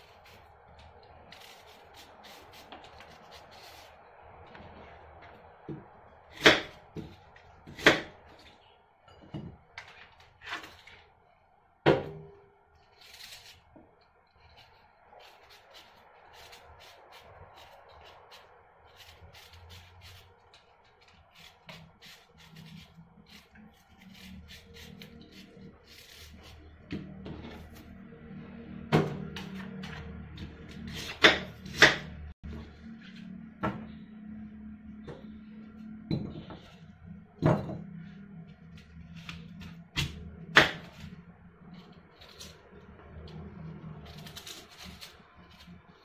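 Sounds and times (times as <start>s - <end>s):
knife peeling apple: 0.0s - 4.4s, 12.8s - 28.0s, 29.4s - 32.2s, 38.6s - 42.6s, 43.2s - 46.0s.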